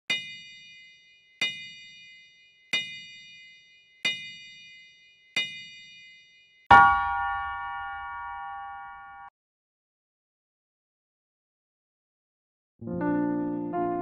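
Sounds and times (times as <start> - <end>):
high metallic chime strikes: 0.1 - 9.3
low bell strike ringing: 6.7 - 9.3.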